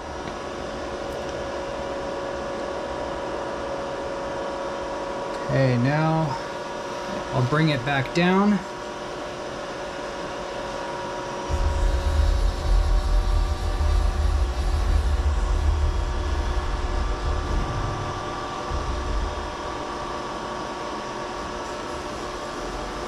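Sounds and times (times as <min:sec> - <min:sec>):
mill machine humming: 0:05.7 - 0:23.0
low uneven rumble: 0:11.5 - 0:20.6.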